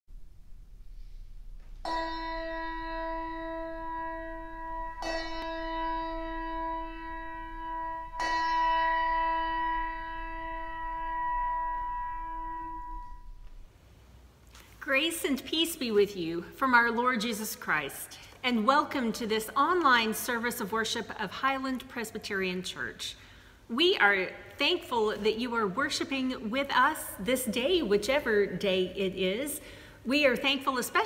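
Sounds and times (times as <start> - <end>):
bell ringing: 1.9 - 13.6.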